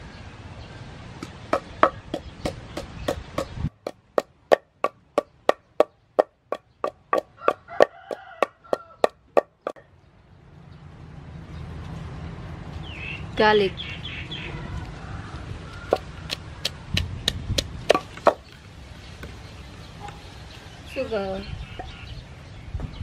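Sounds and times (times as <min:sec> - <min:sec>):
pestle pounding in wooden mortar: 0:01.2 - 0:09.8, 0:15.9 - 0:18.5.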